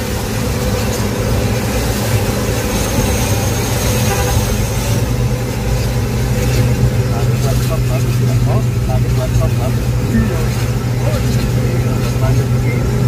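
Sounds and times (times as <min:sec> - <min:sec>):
tyre and road noise: 0:00.0 - 0:13.0
vehicle engine hum: 0:00.0 - 0:13.0.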